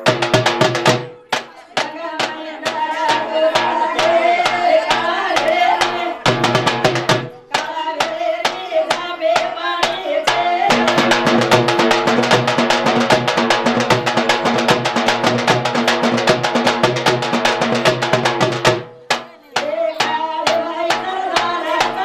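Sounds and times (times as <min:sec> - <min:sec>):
steady drum beat: 0:00.0 - 0:22.0
women singing: 0:01.1 - 0:15.7, 0:19.1 - 0:22.0.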